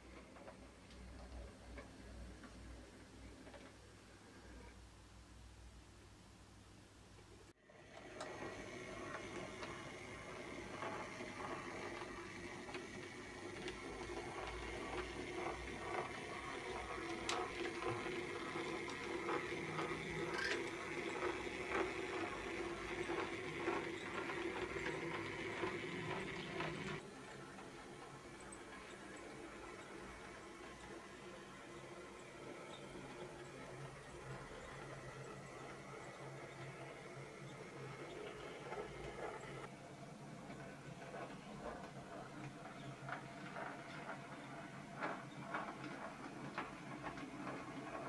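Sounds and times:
wheels clicking on track: 0:07.8 - 0:48.0
model train motor whirring: 0:07.9 - 0:39.7.

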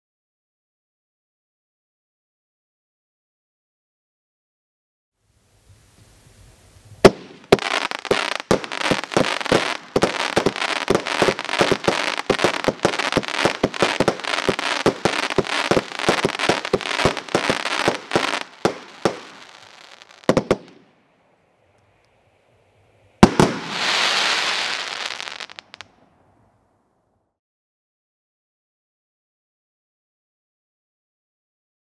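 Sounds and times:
fireworks crackling: 0:05.8 - 0:20.9, 0:23.2 - 0:26.0
fireworks shots firing: 0:07.0 - 0:20.8, 0:23.2 - 0:25.8
loud fireworks bangs: 0:07.0 - 0:20.9, 0:23.2 - 0:25.8.

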